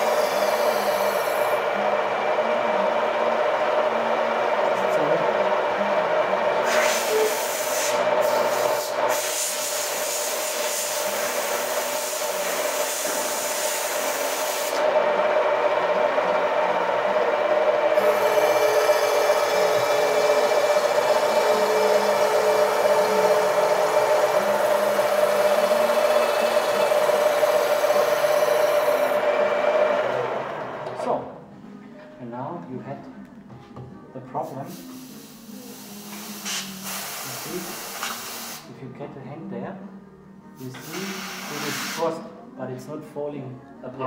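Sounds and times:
motor hum: 0.0 - 7.4, 13.2 - 31.3.

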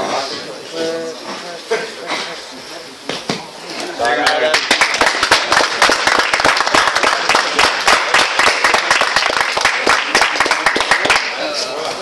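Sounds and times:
crowd applauding: 4.0 - 11.6.

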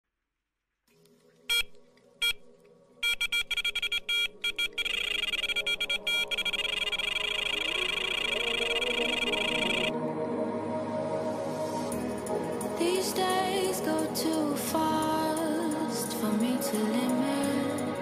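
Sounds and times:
sharp electronic beeps: 1.5 - 2.4, 3.0 - 9.9
warbling electronic tone: 3.3 - 9.9.

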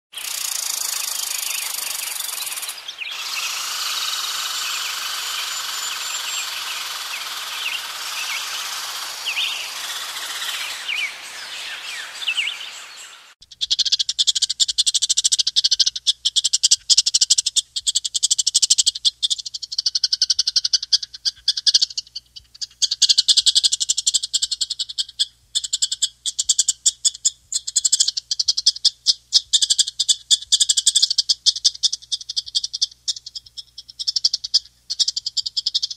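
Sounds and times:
thin chirps: 0.1 - 18.3, 18.9 - 35.9
steady hiss: 0.2 - 13.4
chipmunk chipping: 0.2 - 35.9.

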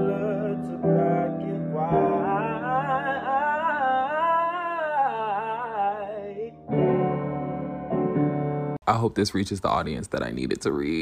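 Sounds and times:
man singing long note: 0.0 - 6.7
piano chords: 0.0 - 8.8.

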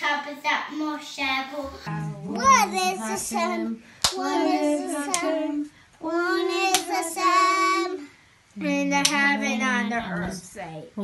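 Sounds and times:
girl singing: 1.6 - 9.6
sharp claps: 4.0 - 4.2.

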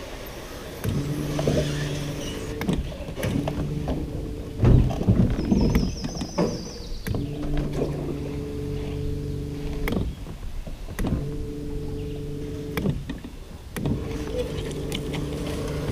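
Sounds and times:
boat motor humming: 0.0 - 15.9
knocks and bumps on hull: 0.9 - 11.8.

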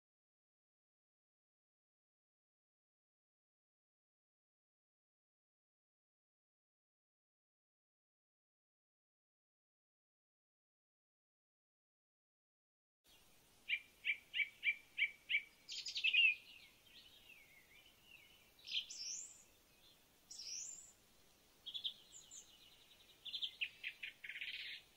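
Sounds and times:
birds singing: 13.1 - 21.0, 21.6 - 24.9.

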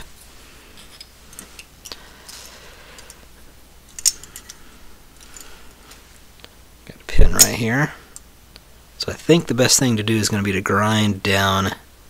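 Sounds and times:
toy truck parts clicking: 3.9 - 4.6.

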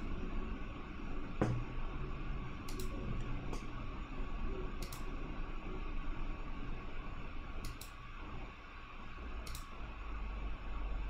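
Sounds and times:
low computer hum: 0.0 - 11.0
computer mouse clicks: 2.7 - 3.0, 4.8 - 5.1, 7.6 - 8.0, 9.4 - 9.8.

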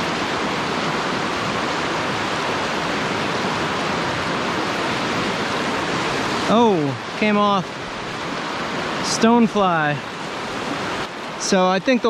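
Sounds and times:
river rapids rushing over rocks: 0.0 - 12.0.

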